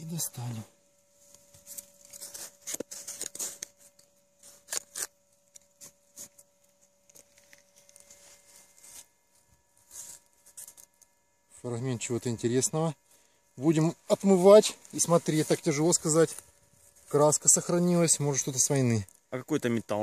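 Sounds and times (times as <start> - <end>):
soil scraping by hand: 1.5 - 6.5, 7.1 - 9.2, 9.8 - 11.0.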